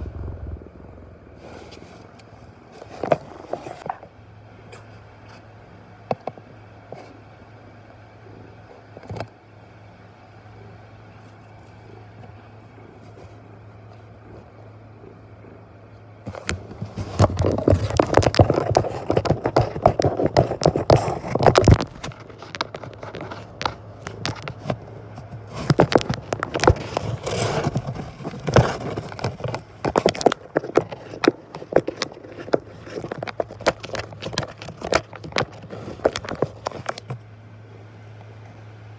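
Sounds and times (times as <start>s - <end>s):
faint low hum: 0.0s - 38.9s
scratching on cardboard: 16.3s - 37.2s.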